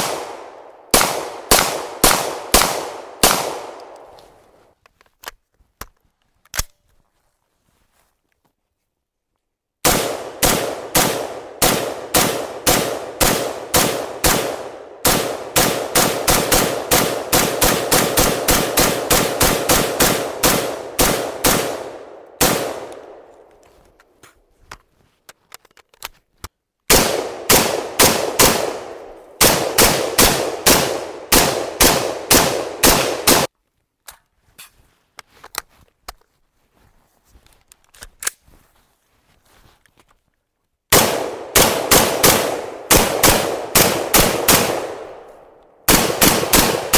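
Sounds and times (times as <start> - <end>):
semi-automatic gunshots: 0.0 - 4.2, 9.8 - 23.4, 26.9 - 33.5, 40.9 - 46.9.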